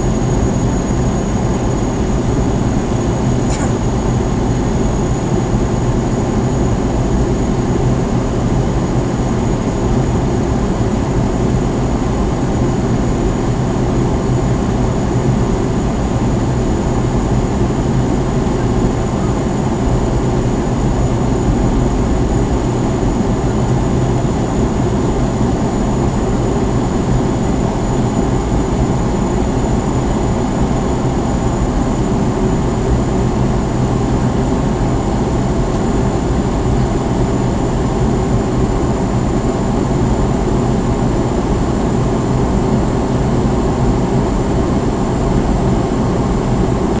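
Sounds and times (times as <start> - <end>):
airliner cabin rush: 3.0 - 4.8.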